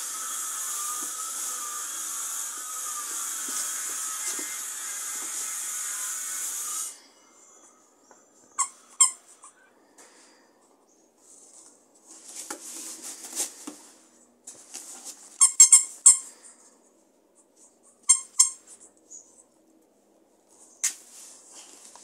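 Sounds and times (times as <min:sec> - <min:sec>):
dog toy squeaking: 0:08.5 - 0:09.7, 0:15.4 - 0:16.3, 0:18.0 - 0:18.6.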